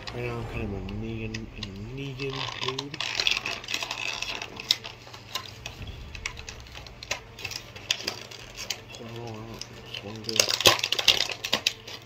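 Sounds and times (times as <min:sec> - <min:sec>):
plastic packaging clicks and crinkles: 0:09.0 - 0:12.0.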